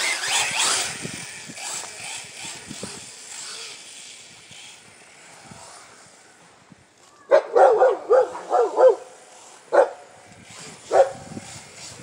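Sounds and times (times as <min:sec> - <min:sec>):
dog barking: 0:07.3 - 0:09.1, 0:09.7 - 0:10.0, 0:10.9 - 0:11.2.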